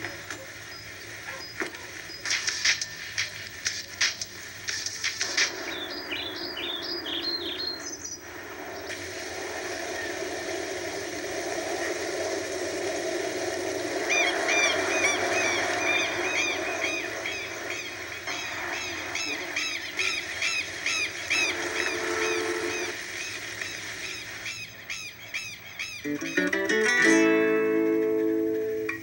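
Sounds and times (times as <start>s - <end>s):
steady background hiss: 0.0s - 29.0s
birds calling harshly: 5.1s - 9.0s, 14.0s - 27.0s.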